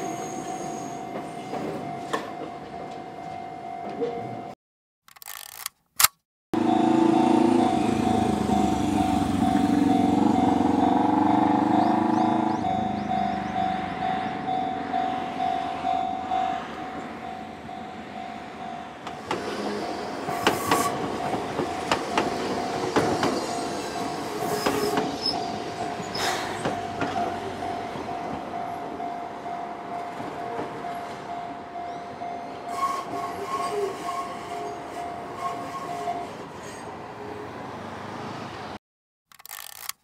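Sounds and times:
level crossing bell ringing: 6.6 - 19.0
electric train passing: 6.6 - 38.7.

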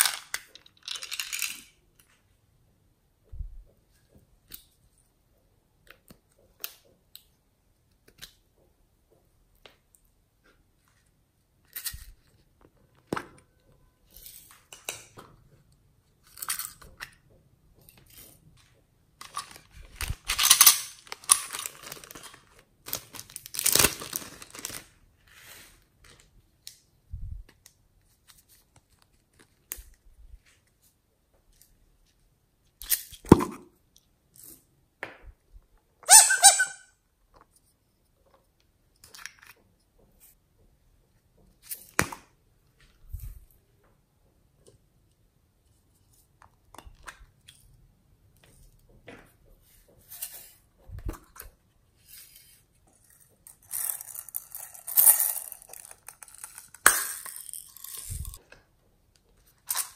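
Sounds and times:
plastic packets rustling: 19.2 - 25.2.

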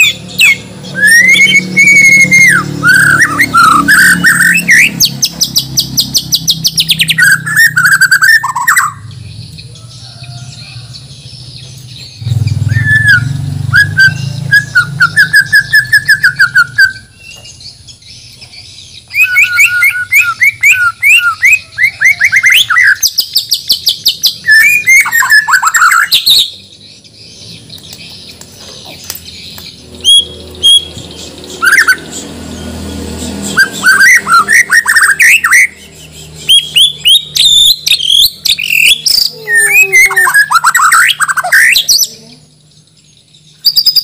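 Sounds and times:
bird singing whistled phrases: 0.0 - 9.0, 12.6 - 17.4, 19.1 - 26.6, 30.0 - 30.9, 31.6 - 32.1, 33.4 - 42.2, 43.6 - 44.0.

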